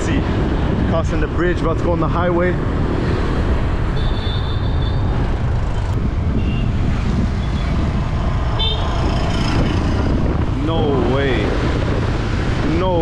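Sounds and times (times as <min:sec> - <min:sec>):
wind rush on microphone: 0:00.0 - 0:13.0
motorcycle engine: 0:02.6 - 0:12.7.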